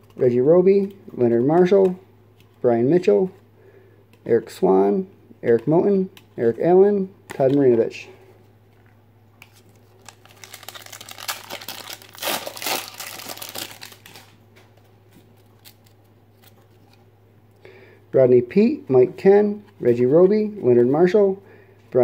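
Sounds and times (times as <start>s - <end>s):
foil wrapper crinkling: 9.5s - 14.4s
foil wrapper tearing: 10.0s - 14.4s.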